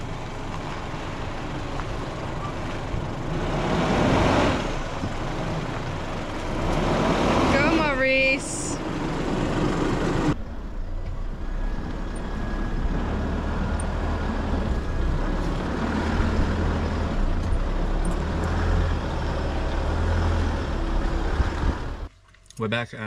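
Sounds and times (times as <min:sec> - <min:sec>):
vehicle driving on dirt track: 0:00.0 - 0:22.8.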